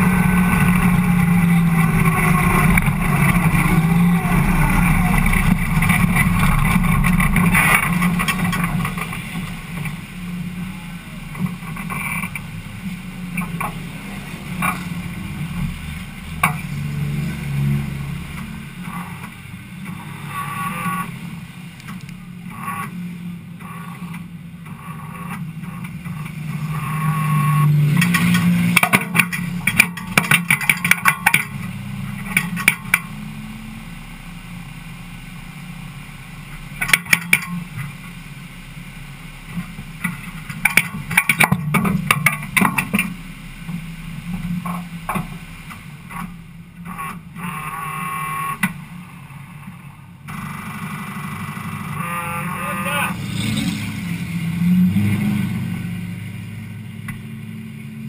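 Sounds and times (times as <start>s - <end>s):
sharp clicks and rattles: 0.0s - 10.1s, 11.3s - 12.5s, 13.3s - 15.0s, 21.8s - 23.0s, 23.6s - 33.2s, 36.6s - 38.1s, 39.5s - 47.7s
car engine idling: 0.0s - 58.0s.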